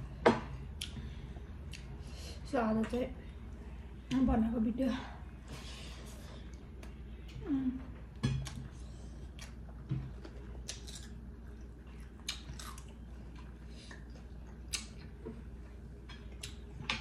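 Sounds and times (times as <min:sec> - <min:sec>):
chewing with mouth clicks: 0:01.6 - 0:02.0, 0:08.4 - 0:16.8.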